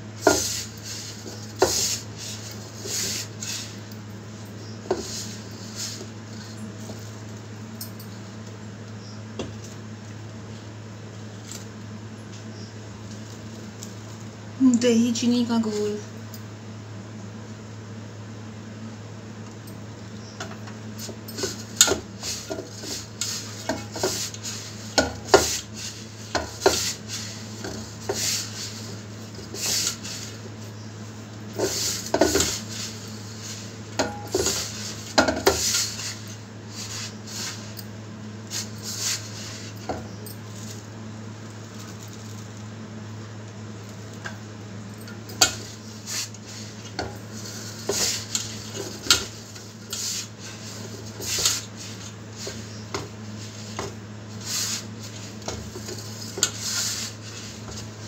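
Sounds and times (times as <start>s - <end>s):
hands working dough in steel bowl: 0.0s - 7.4s, 21.0s - 30.7s, 31.4s - 37.8s, 45.2s - 58.0s
steady low hum: 0.0s - 58.0s.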